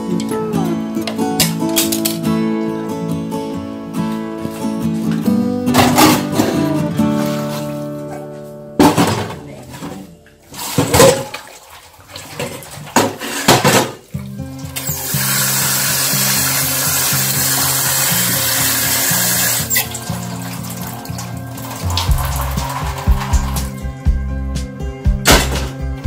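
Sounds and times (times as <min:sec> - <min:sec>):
background music: 0:00.0 - 0:10.4, 0:14.1 - 0:26.0
water running into sink: 0:10.5 - 0:24.0
water splashing into colander: 0:10.5 - 0:24.0.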